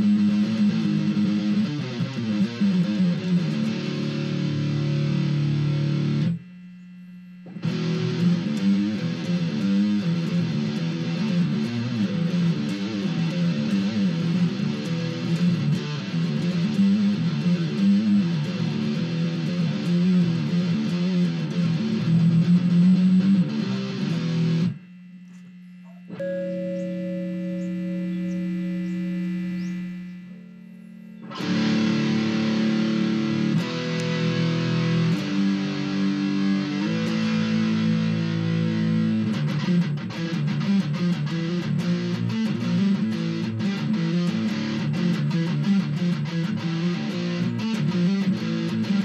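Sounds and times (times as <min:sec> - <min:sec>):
distorted electric guitar: 0:00.0 - 0:49.0
steady low hum: 0:03.0 - 0:40.0.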